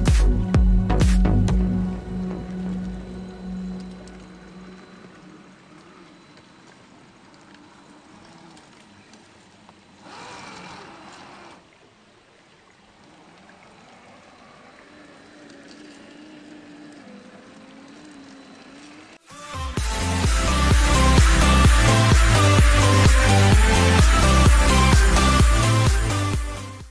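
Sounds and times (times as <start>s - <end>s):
stream water running: 1.6s - 26.9s
rush of water: 4.1s - 26.7s
electric motor whining: 10.0s - 11.6s, 14.0s - 26.8s.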